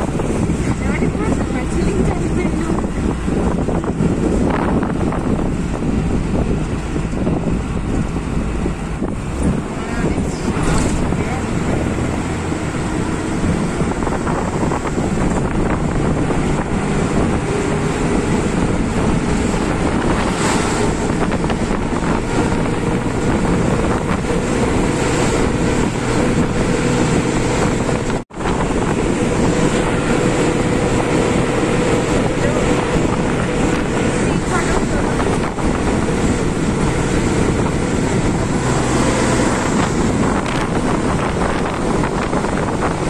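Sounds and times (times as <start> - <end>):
wind buffeting microphone: 0.0 - 43.0.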